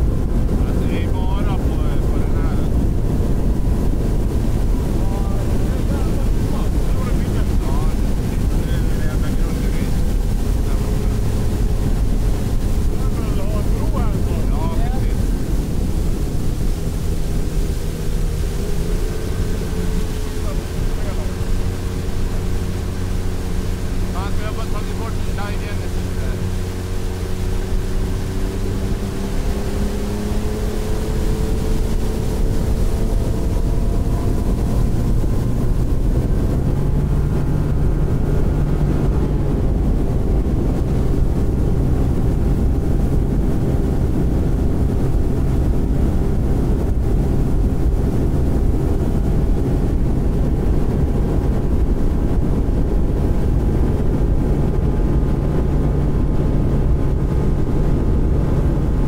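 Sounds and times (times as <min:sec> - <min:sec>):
outboard motor running: 0:00.0 - 0:59.0
rush of wind and water: 0:00.0 - 0:59.0.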